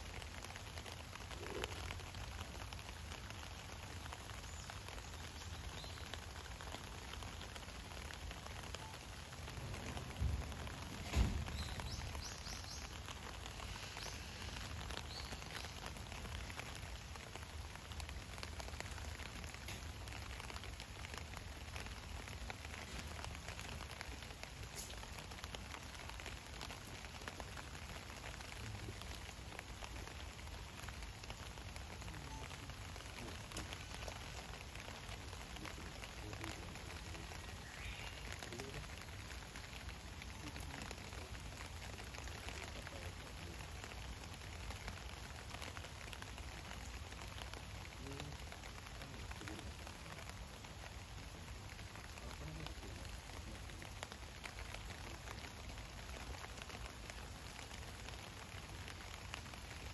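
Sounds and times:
light rain pattering: 0.0s - 59.9s.

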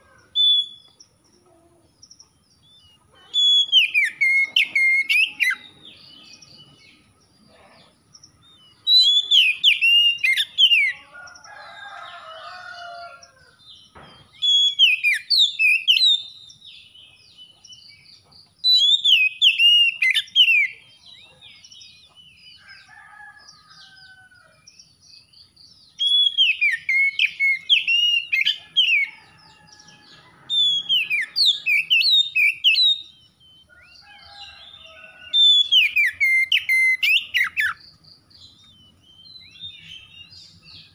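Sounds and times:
bird whistled song: 0.3s - 1.1s, 2.7s - 5.8s, 8.8s - 11.0s, 13.8s - 16.6s, 17.4s - 20.8s, 25.9s - 29.2s, 30.5s - 34.4s, 35.4s - 40.9s.

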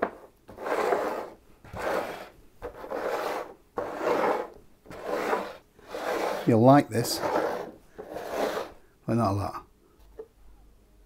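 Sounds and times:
mugs sliding on wooden table: 0.0s - 8.8s.

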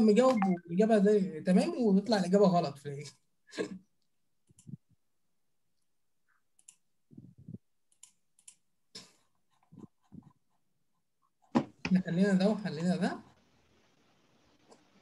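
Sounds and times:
mouse and keyboard clicks: 6.6s - 6.8s, 7.9s - 8.6s.

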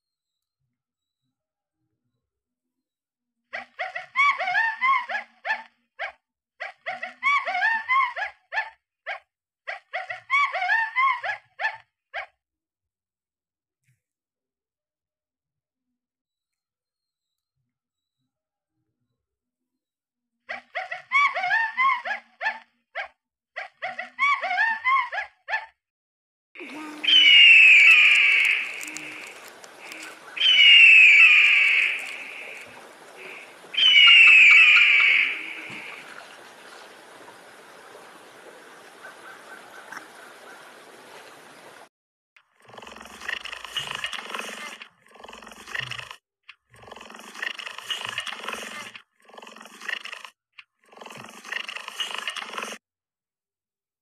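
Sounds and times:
eagle screeching: 26.6s - 36.1s
monkey whooping calls: 26.6s - 36.5s.

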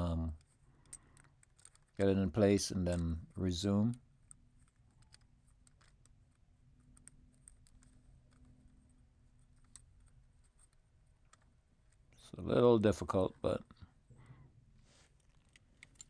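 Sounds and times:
gloved hands handling wiring: 0.0s - 16.0s.

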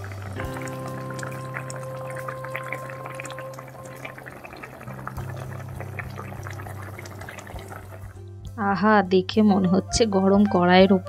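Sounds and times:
small bubbles popping: 0.0s - 8.1s
fish curry boiling: 0.0s - 8.2s.

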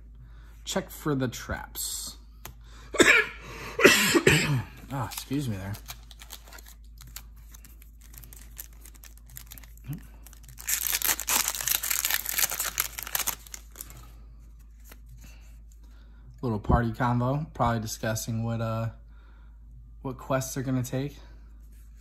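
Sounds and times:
foil wrapper tearing: 4.8s - 14.0s.

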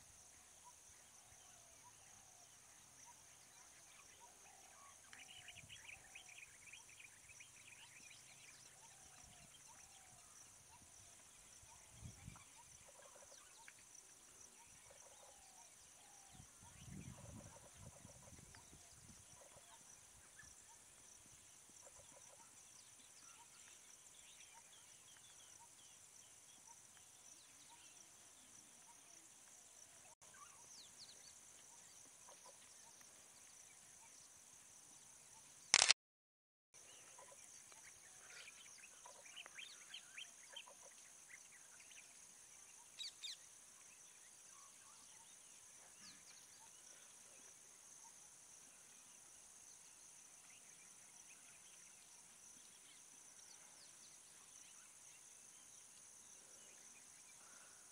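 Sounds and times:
sharp click: 35.7s - 36.0s
insect drone: 36.8s - 57.9s.

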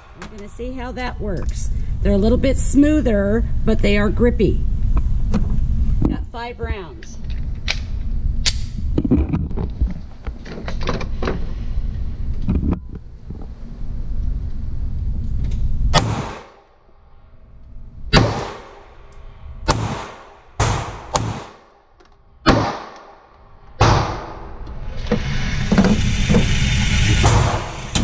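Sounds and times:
pistol shots echoing: 18.1s - 18.8s, 19.7s - 21.6s, 22.4s - 23.2s
mechanical whir: 24.4s - 28.0s.

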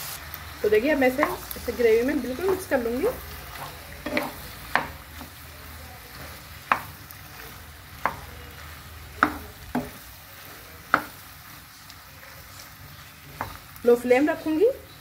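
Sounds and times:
faint sizzle: 0.0s - 15.0s
spatula knocking against pan: 4.0s - 5.1s, 6.6s - 7.0s, 9.2s - 10.0s, 10.9s - 11.2s.

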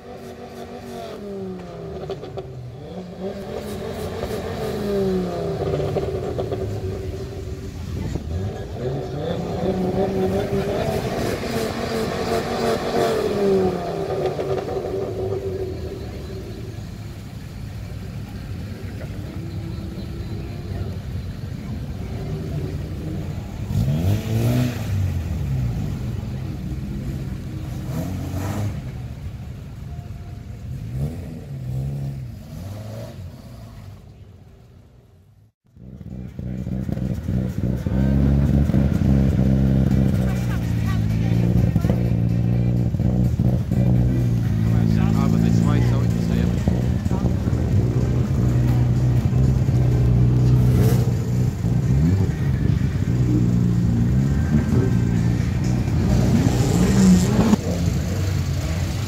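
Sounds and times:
car engine revving hard: 0.0s - 16.9s, 22.0s - 29.1s, 36.0s - 59.0s
car engines accelerating: 0.0s - 59.0s.

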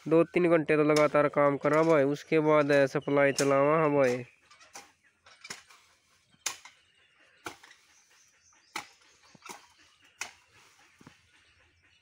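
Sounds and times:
hoe chopping into soil: 5.5s - 6.8s, 7.4s - 7.8s, 8.7s - 10.4s.

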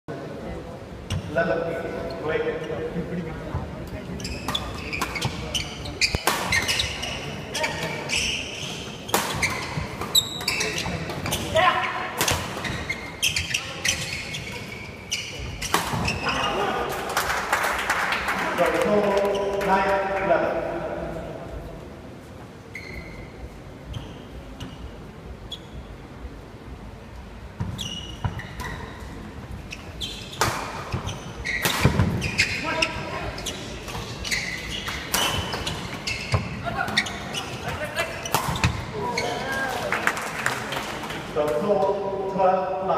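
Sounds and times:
murmur of crowd chatter: 0.1s - 17.2s, 17.8s - 42.9s
shoes squeaking: 3.9s - 16.9s, 19.0s - 19.9s, 22.2s - 26.2s, 27.6s - 39.8s
rackets hitting shuttlecock: 6.0s - 6.9s, 30.3s - 32.6s, 33.8s - 37.0s, 37.6s - 38.9s.

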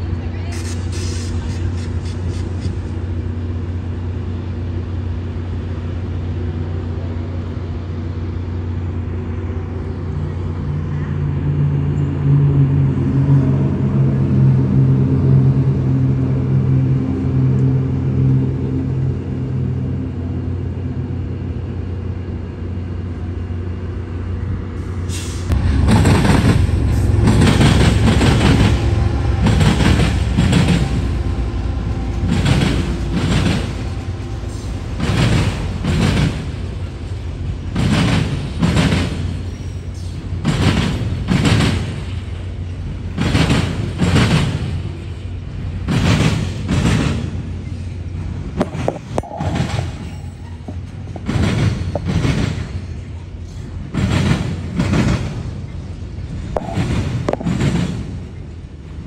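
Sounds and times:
diesel locomotive rumble: 0.0s - 59.0s
train wheels clacking over rail joints: 25.1s - 58.7s.

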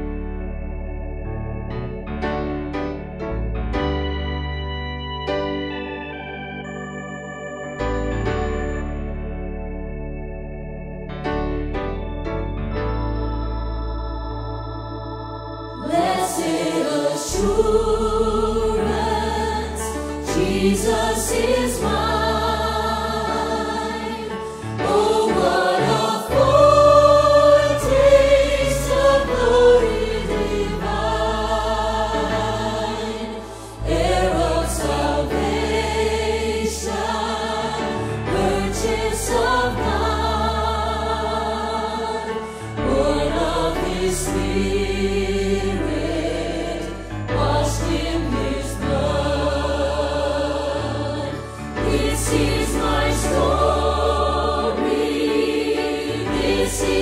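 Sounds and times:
keyboard with sustained bass notes: 0.0s - 57.0s
choir singing: 14.2s - 57.0s.

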